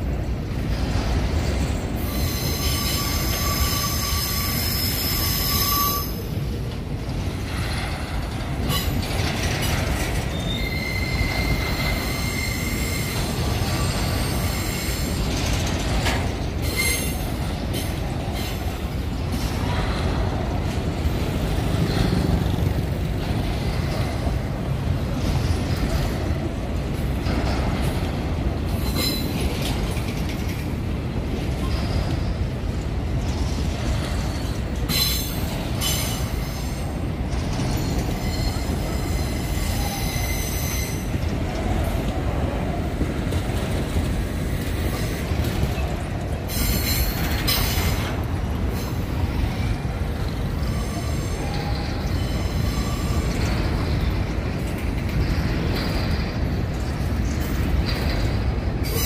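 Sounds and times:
train wheels rumbling on rail: 0.0s - 59.0s
high-pitched wheel squeal: 2.0s - 6.3s, 10.3s - 15.3s, 37.8s - 41.2s.

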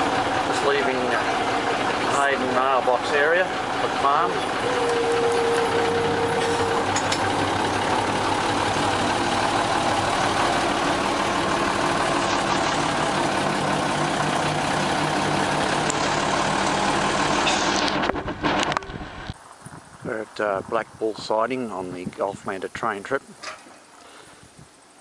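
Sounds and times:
diesel engine drone: 0.0s - 23.3s
wheel and track noise: 0.0s - 25.0s.

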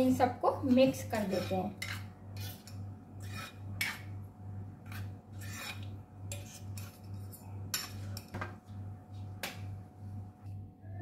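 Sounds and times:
faint low hum: 0.0s - 11.0s
spoon scraping in a bowl: 0.8s - 4.2s, 4.8s - 8.3s.

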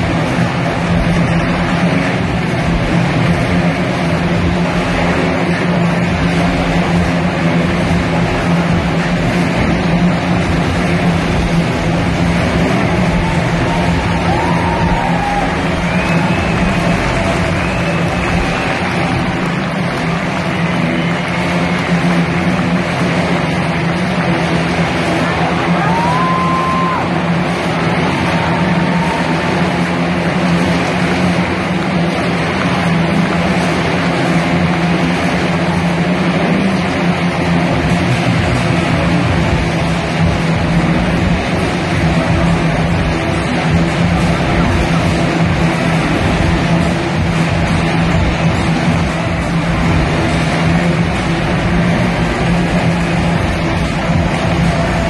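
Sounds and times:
motorcycle engines droning: 0.0s - 55.0s
high whistle-like tone: 15.7s - 18.8s.

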